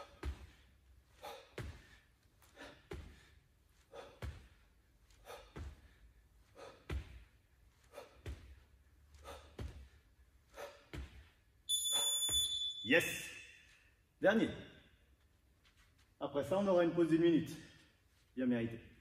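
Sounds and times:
person breathing out hard: 1.1 - 7.2.

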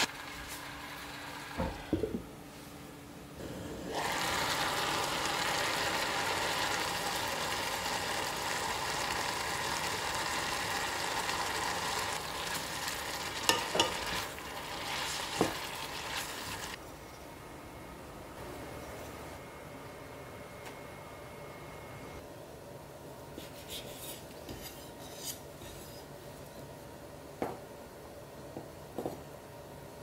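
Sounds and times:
vegetables sizzling in saucepan: 0.0 - 2.1, 3.5 - 16.8.

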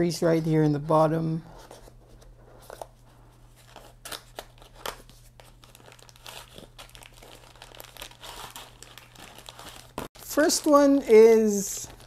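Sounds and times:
plastic packaging crinkling: 3.6 - 12.0.

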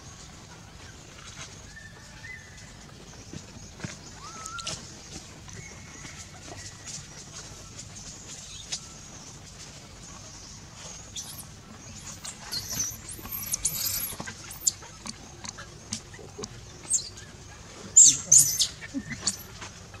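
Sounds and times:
baby monkey squealing: 11.2 - 14.8, 18.0 - 19.5.

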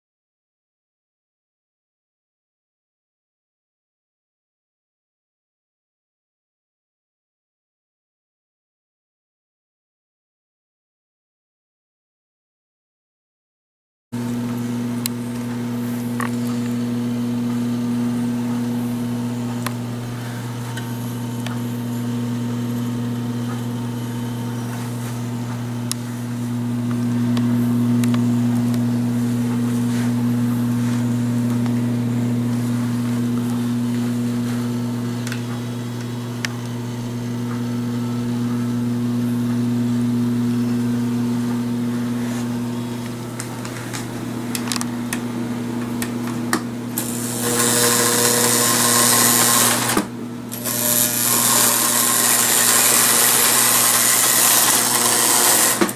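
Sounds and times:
toy train electric hum: 15.0 - 17.5, 23.5 - 38.7, 44.6 - 45.2, 46.2 - 55.9.

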